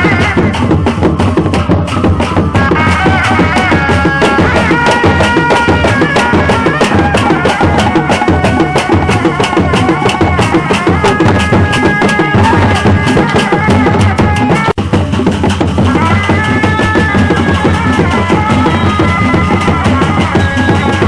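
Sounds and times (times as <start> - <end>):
hand drums in fast rhythm: 0.0 - 21.0.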